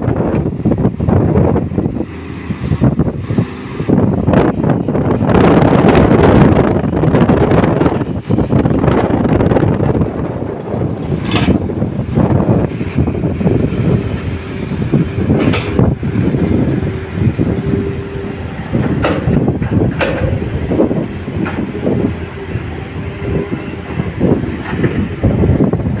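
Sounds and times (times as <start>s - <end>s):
truck engine rumble: 0.0s - 26.0s
truck body clanking: 7.1s - 14.0s, 14.8s - 17.6s, 18.7s - 22.2s.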